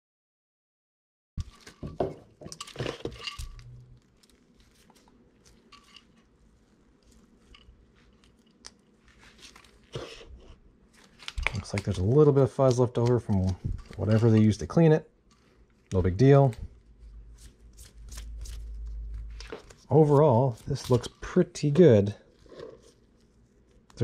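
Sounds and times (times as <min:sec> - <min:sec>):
motor handling knocks and rustles: 0:01.4 - 0:03.6.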